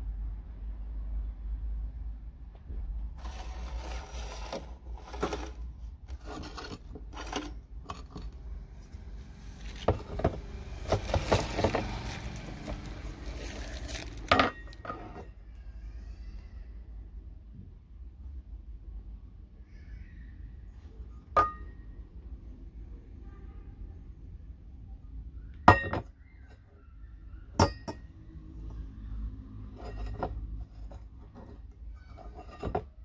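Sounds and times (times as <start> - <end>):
metal pots scraping: 3.2 - 15.4, 29.6 - 33.0
metal pots clinking and knocking: 9.8 - 15.3, 21.4 - 21.7, 27.6 - 28.0.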